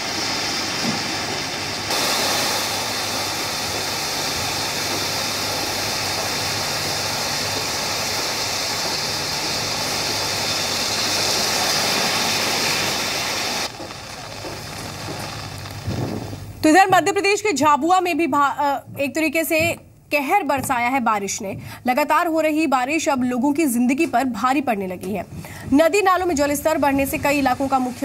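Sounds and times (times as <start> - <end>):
floodwater roaring: 0.0 - 16.6.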